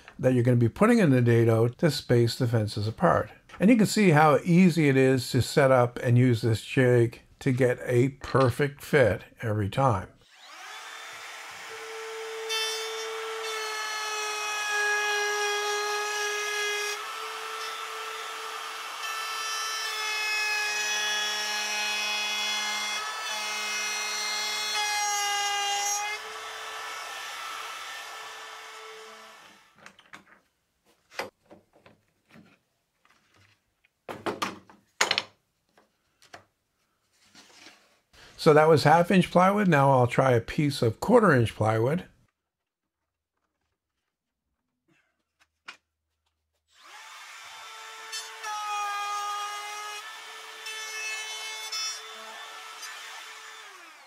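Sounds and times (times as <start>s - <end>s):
router whining: 10.2s - 14.4s, 16.6s - 20.0s, 46.7s - 48.5s, 51.5s - 54.0s.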